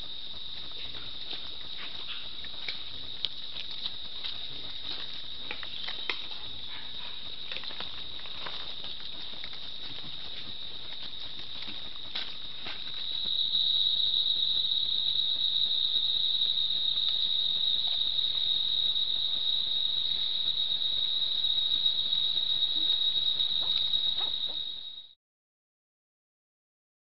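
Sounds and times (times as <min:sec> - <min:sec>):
insects high-pitched drone: 0:00.0 - 0:25.2
faint ticks: 0:00.5 - 0:08.0.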